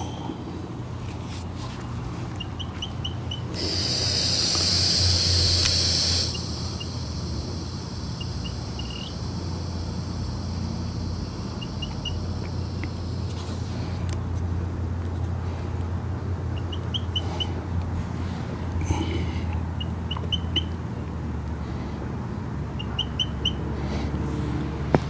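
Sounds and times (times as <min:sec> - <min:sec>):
steady low hum: 0:00.0 - 0:25.0
faint bird chirps: 0:02.4 - 0:13.3, 0:19.8 - 0:20.8, 0:22.8 - 0:23.6
gas hissing through hose: 0:03.5 - 0:14.0.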